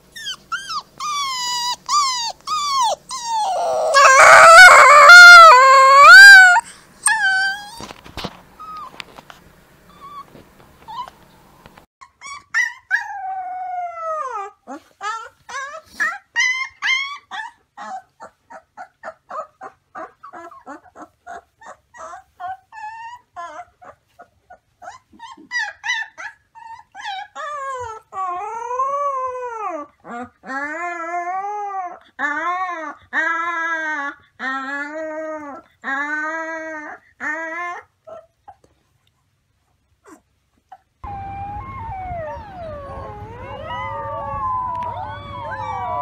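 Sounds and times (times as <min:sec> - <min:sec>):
puppy whimpering and yipping: 0:00.1 - 0:07.9, 0:08.6 - 0:09.0, 0:09.9 - 0:11.3, 0:12.0 - 0:38.7, 0:40.0 - 0:46.0
puppy howling: 0:00.2 - 0:07.9, 0:41.0 - 0:46.0.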